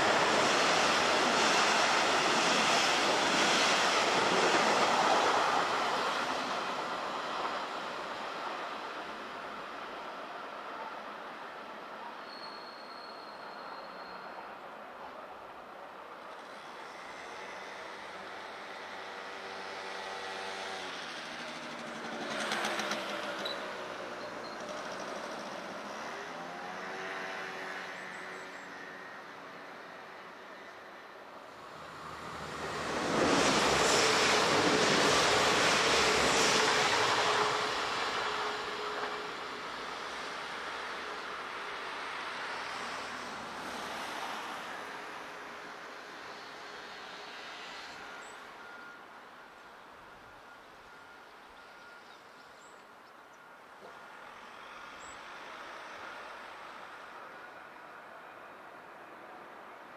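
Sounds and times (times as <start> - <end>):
train wheels rushing on rails: 0.0 - 11.0, 16.3 - 28.1, 31.5 - 52.0
steady train hum: 0.0 - 12.3, 14.2 - 59.9
distant traffic: 0.0 - 59.9.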